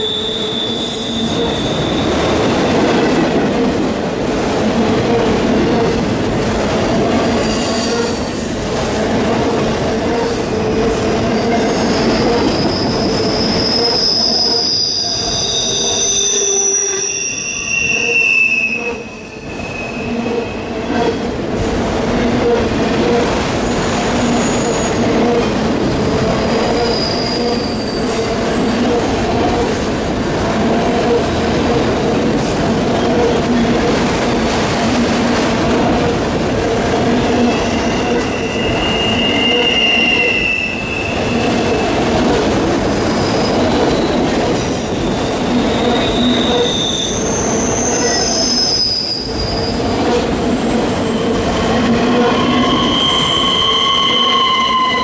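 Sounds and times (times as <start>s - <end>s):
wheel squeals: 0.0s - 2.8s, 11.2s - 21.2s, 26.4s - 29.6s, 36.8s - 42.2s, 43.0s - 55.0s
freight train wheels rumbling: 0.0s - 55.0s.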